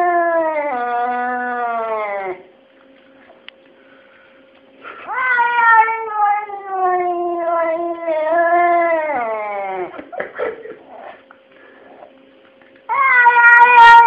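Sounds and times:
cat yowling: 0.0 - 2.4, 5.1 - 9.9, 12.9 - 14.0
faint steady hum: 0.0 - 14.0.

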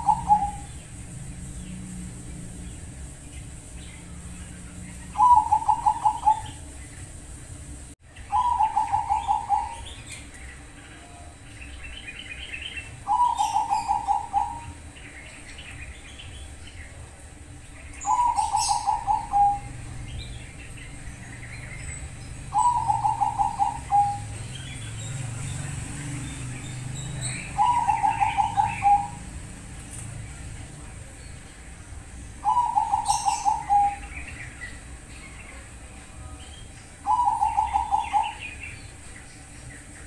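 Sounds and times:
dove cooing: 0.0 - 3.0, 4.0 - 6.8, 8.3 - 11.4, 12.1 - 15.0, 18.0 - 29.8, 32.4 - 34.8, 37.0 - 39.0
small birds chirping: 0.0 - 40.0.

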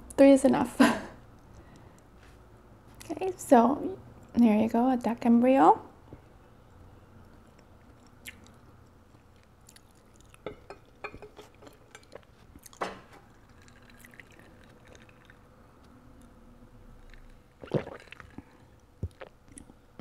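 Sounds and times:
faint chewing: 6.7 - 16.4.

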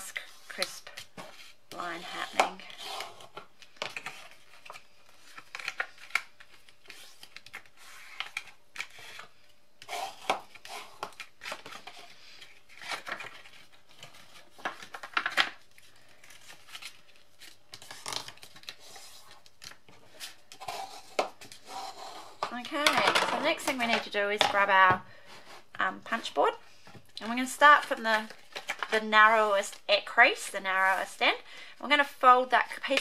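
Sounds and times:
paper rustling and crinkling: 9.9 - 24.4.

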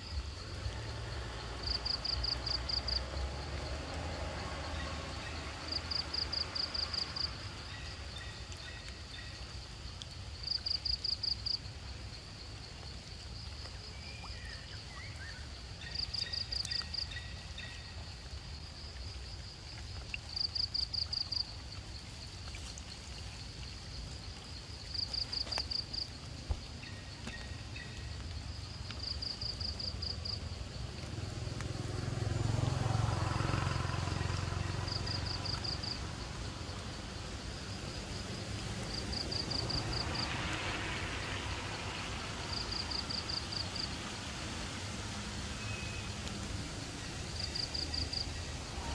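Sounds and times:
distant motorbike drone: 30.4 - 36.6.

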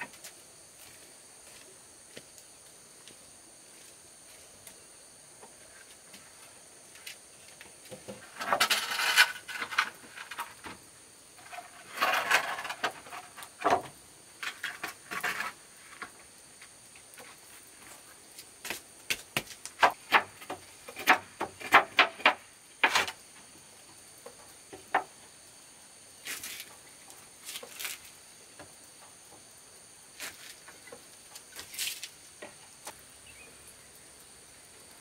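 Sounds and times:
insects droning: 0.0 - 35.0
sharp knocks and clacks: 18.7 - 23.2.

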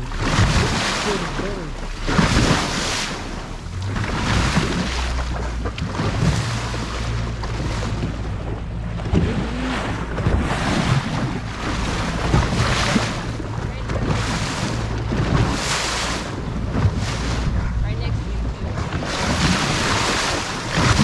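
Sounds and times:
low engine hum: 0.0 - 21.0
water rushing along hull: 0.0 - 21.0
wind buffeting microphone: 0.0 - 21.0.

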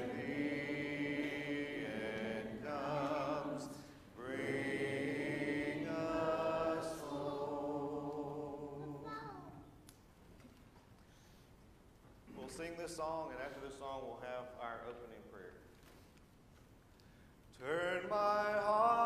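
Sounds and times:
congregation singing a hymn: 0.0 - 9.1, 17.6 - 19.0.

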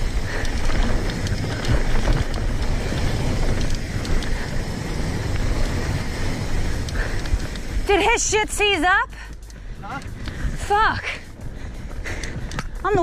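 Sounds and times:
bike clicks and rattles: 0.0 - 13.0
bike tyres on dirt: 0.0 - 13.0
wind rumbling on microphone: 0.0 - 13.0.

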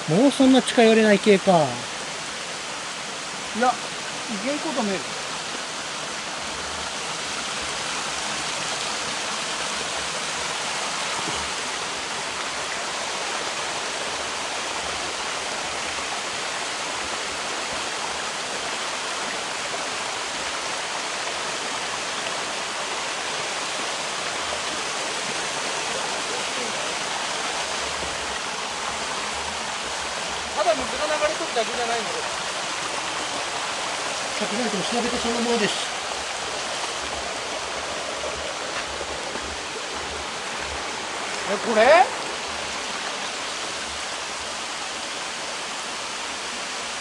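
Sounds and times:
stream rushing over boulders: 0.0 - 47.0.

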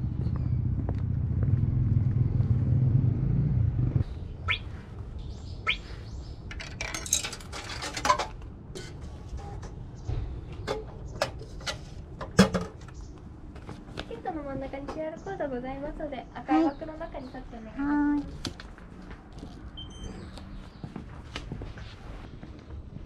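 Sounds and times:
bird chirps: 4.4 - 6.4
metallic clicks and clinks: 6.5 - 8.2.

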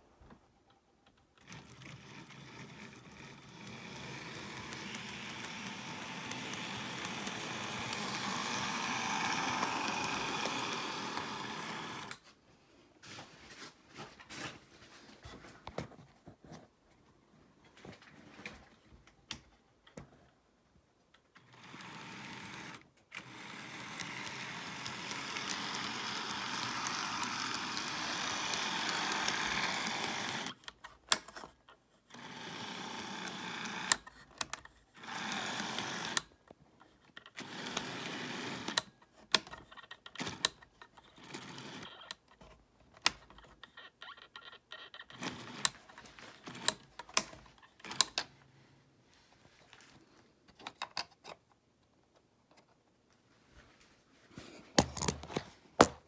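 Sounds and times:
model train motor whirring: 1.4 - 12.2, 21.4 - 30.7, 32.1 - 36.3, 37.2 - 40.6, 41.2 - 42.2.

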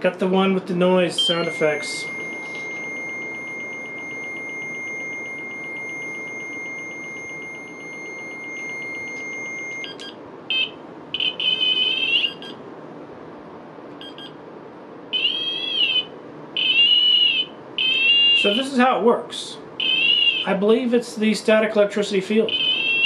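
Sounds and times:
steady high electronic tone: 1.1 - 12.6
wavering electronic warble: 1.2 - 9.9
short electronic beeps: 1.2 - 11.6, 14.0 - 14.4
fast pulsing beep: 1.2 - 11.7.

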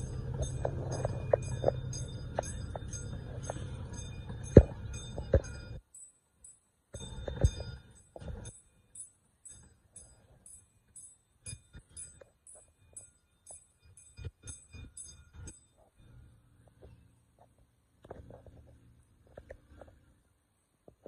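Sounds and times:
crossing signal bell dinging: 0.0 - 17.2.

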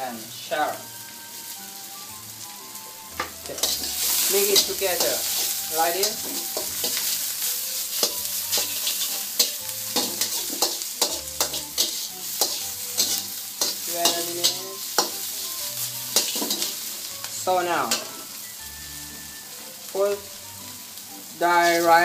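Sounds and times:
food sizzling in oil: 0.0 - 22.0
spatula scraping a steel wok: 3.2 - 17.1.

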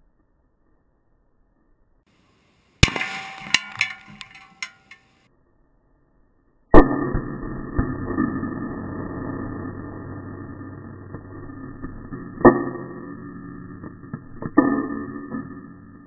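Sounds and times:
rifle shots: 2.8 - 5.0
metallic clinks and clatter: 2.8 - 5.2.

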